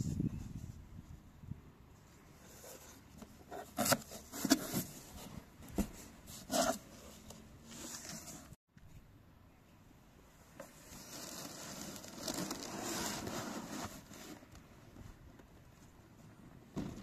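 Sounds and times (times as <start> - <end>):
cardboard flaps rubbing and scraping: 2.4 - 8.6, 10.7 - 14.5.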